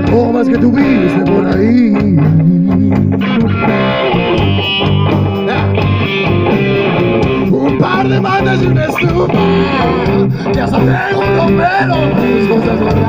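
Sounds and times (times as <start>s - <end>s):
blues-rock band playing: 0.0s - 13.0s
drum hits: 0.1s - 11.6s.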